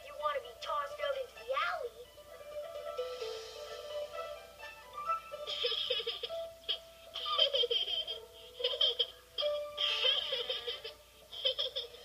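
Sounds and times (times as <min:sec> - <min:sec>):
light background music: 0:00.0 - 0:12.0
cartoon kitten giggling: 0:05.3 - 0:12.0.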